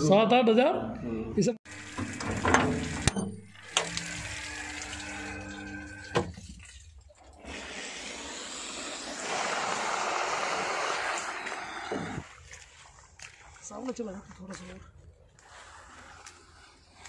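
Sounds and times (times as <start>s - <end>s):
water rushing and splashing: 1.7s - 14.7s.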